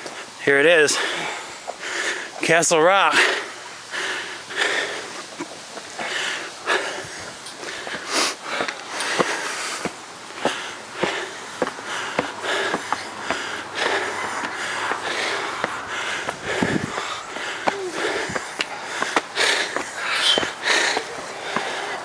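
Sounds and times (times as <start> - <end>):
person breathing heavily: 0.0 - 2.4, 3.0 - 22.0
footsteps on concrete stairs: 6.7 - 22.0.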